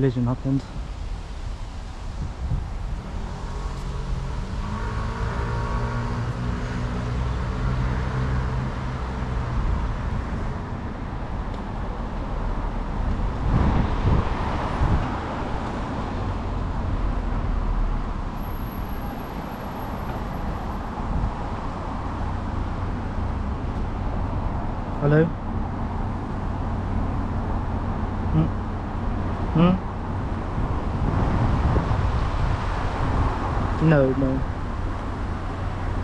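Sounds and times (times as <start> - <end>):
vehicle engine humming: 0.0 - 36.0
vehicle passing by: 2.2 - 11.0.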